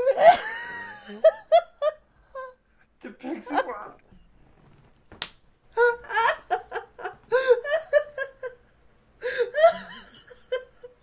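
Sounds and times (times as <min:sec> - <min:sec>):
person laughing: 0:00.0 - 0:02.6, 0:05.8 - 0:11.0.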